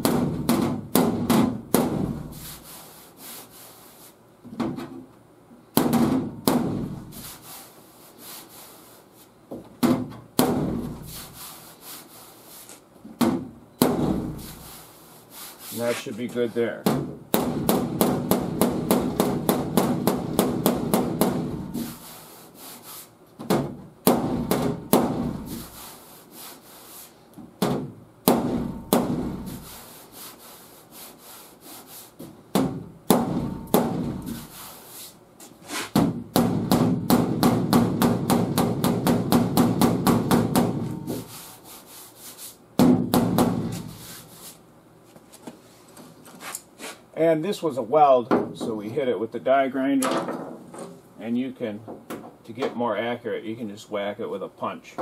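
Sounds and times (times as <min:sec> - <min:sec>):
hammer tapping on sheet metal: 0:00.0 - 0:02.3, 0:05.8 - 0:06.9, 0:13.2 - 0:14.5, 0:16.8 - 0:22.0, 0:23.4 - 0:25.7, 0:27.6 - 0:29.7, 0:32.5 - 0:34.6, 0:35.9 - 0:41.3, 0:42.8 - 0:43.9.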